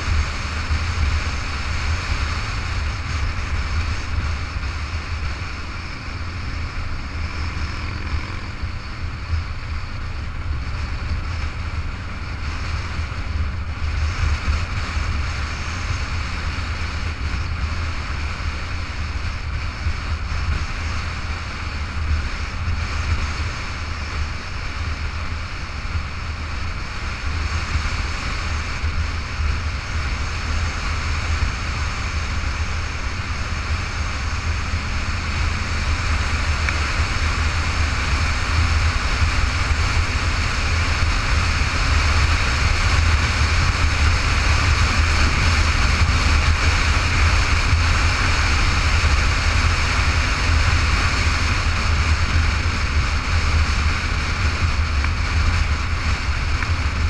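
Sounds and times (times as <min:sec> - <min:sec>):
motorcycle engine rumble: 0:00.0 - 0:57.0
wind noise: 0:00.0 - 0:57.0.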